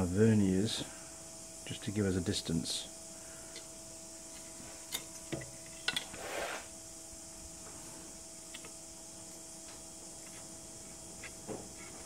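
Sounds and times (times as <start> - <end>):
faint steady hum: 0.0 - 12.0
short scrape: 6.1 - 6.7.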